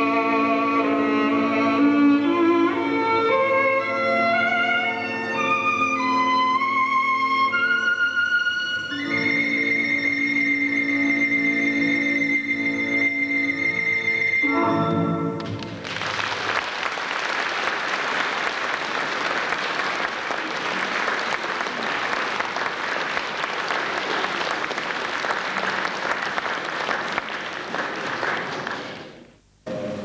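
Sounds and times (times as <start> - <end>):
audience applauding: 15.4 - 29.3.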